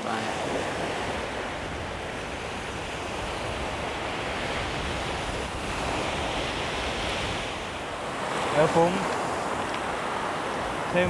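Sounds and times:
waves washing on sandy beach: 0.0s - 11.0s.

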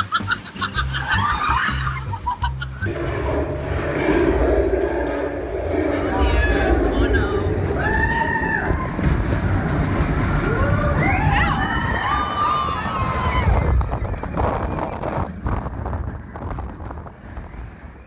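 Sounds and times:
roller coaster rumbling: 0.0s - 18.0s
wind buffeting microphone: 2.8s - 18.0s
riders screaming: 5.6s - 15.0s.

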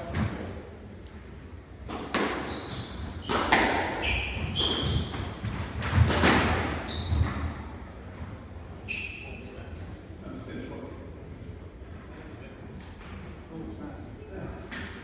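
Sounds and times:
shoes squeaking on wooden floor: 4.0s - 5.2s, 6.8s - 7.5s.

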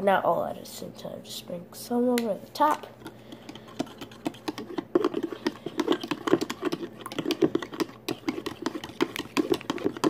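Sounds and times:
metal spoon stirring in plastic cup: 2.6s - 10.0s.

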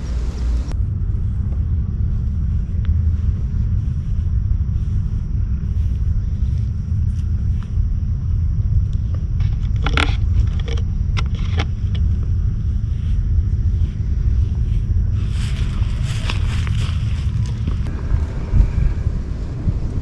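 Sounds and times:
wind buffeting microphone: 0.0s - 20.0s
sharp clicks and crackles: 8.8s - 12.3s.

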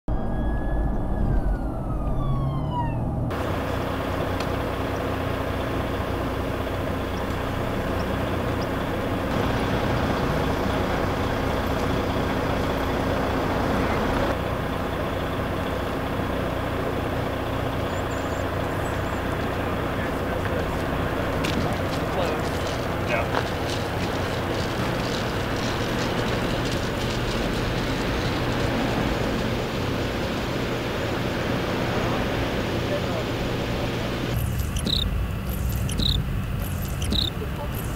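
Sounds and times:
siren falling in pitch: 0.1s - 3.4s
engine rumble: 0.1s - 37.9s
road rumble: 0.1s - 37.9s
street noise: 0.1s - 37.9s.

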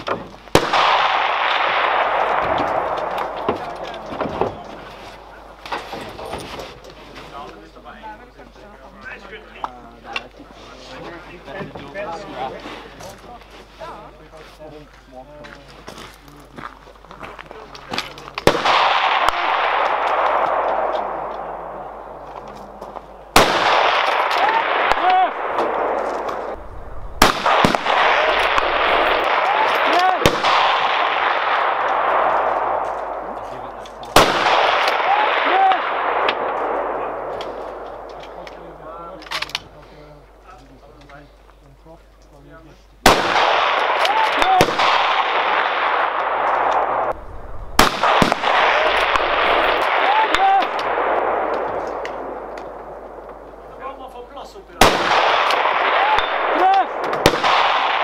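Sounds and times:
rifle shot with rolling echo: 0.0s - 6.3s, 18.4s - 39.5s, 43.0s - 54.1s, 54.7s - 58.0s
loud rush after shot: 23.4s - 33.4s, 43.1s - 52.6s.

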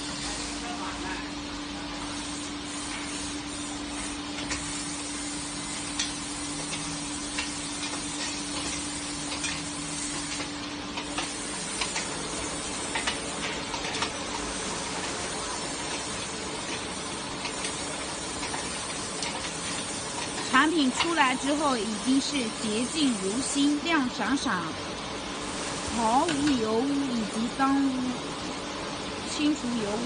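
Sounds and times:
hiss of blowing air and spray: 0.0s - 30.0s
steady machine hum: 0.0s - 30.0s.

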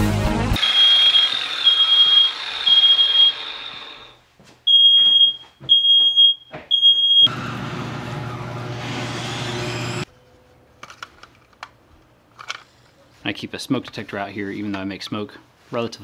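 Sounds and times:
smoke alarm beeping: 0.6s - 7.3s.

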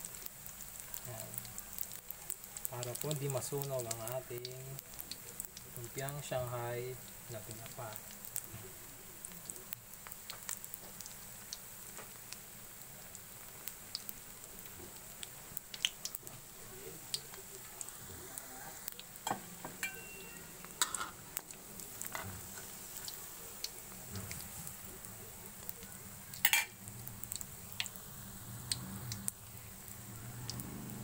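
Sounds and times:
food deep-frying in oil: 0.0s - 31.0s.

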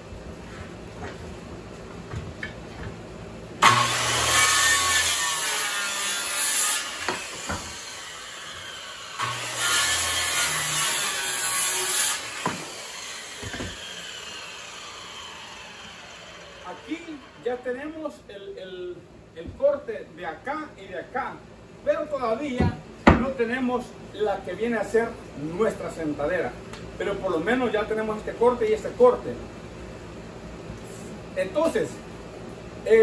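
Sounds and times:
saw spinning down: 3.6s - 5.6s, 6.3s - 17.5s
circular saw cutting wood: 3.6s - 18.0s
sharp knocks of wooden board: 12.4s - 12.6s, 22.6s - 23.3s.

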